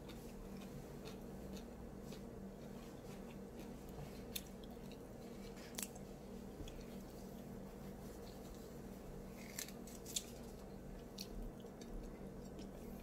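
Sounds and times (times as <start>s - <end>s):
person chewing: 0.0s - 6.0s
low steady hum: 0.0s - 13.0s.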